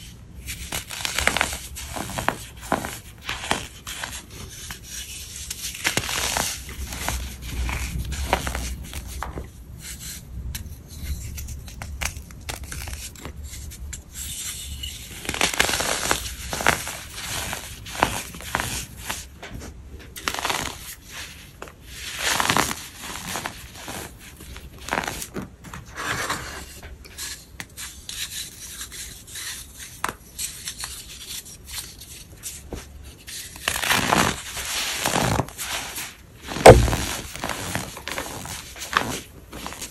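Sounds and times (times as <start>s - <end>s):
chalky blocks crunching and crumbling: 0.6s - 10.2s, 15.2s - 19.3s, 33.3s - 39.9s.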